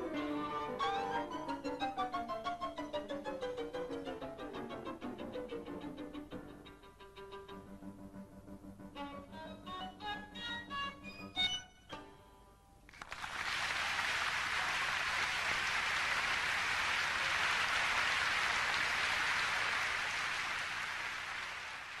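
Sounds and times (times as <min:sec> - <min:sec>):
violin and piano: 0:00.0 - 0:12.4
audience applause: 0:12.9 - 0:22.0.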